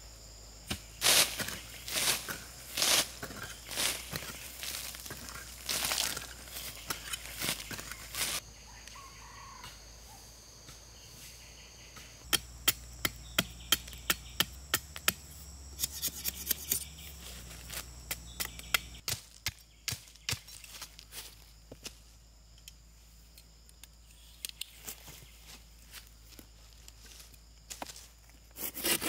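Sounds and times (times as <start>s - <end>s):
insects droning: 0.0s - 29.0s
soil scuffing: 1.0s - 8.4s, 15.8s - 21.8s
machete chopping bamboo: 12.3s - 16.9s, 18.0s - 20.6s.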